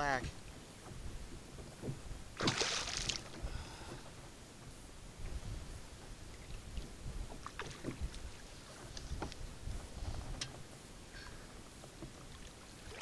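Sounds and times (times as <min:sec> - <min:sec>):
wind rumbling on microphone: 0:00.0 - 0:12.9
water lapping against kayak hull: 0:00.1 - 0:13.0
small splashes: 0:02.3 - 0:04.0, 0:12.3 - 0:13.0.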